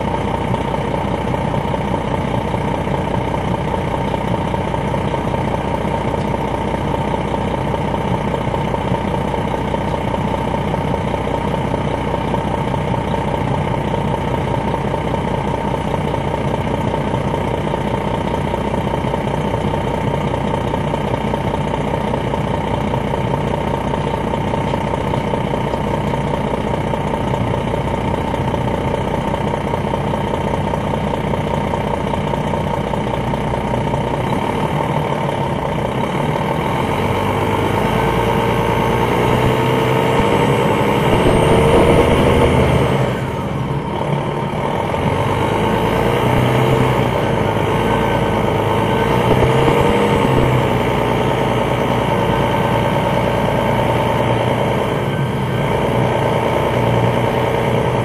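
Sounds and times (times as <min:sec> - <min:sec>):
diesel bus engine running: 0:00.0 - 0:58.0
steady whine: 0:38.6 - 0:44.0, 0:46.4 - 0:52.1.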